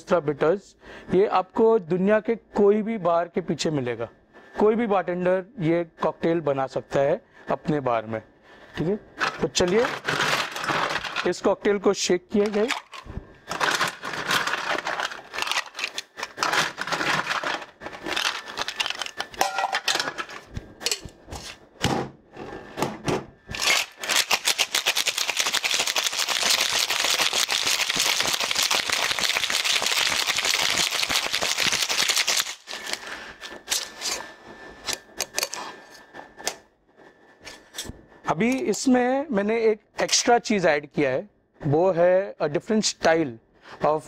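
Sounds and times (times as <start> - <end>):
ice rattling in shaker: 9.2 - 11.4, 12.4 - 19.6, 23.6 - 33.0.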